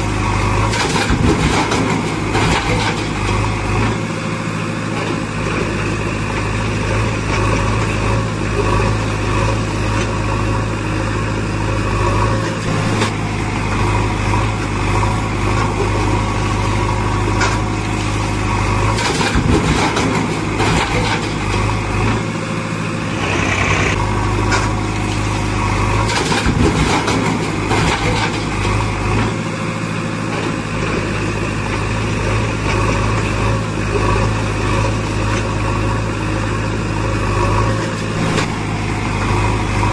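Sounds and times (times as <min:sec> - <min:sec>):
engine idling: 0:00.0 - 0:39.9.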